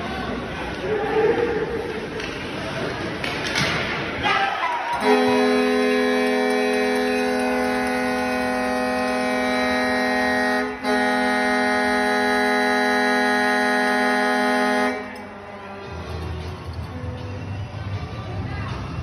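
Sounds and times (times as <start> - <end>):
goal horn blasts: 4.9 - 15.8.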